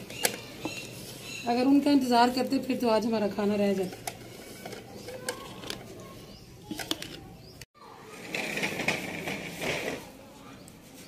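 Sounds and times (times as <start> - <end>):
birds chirping: 0.0 - 7.7.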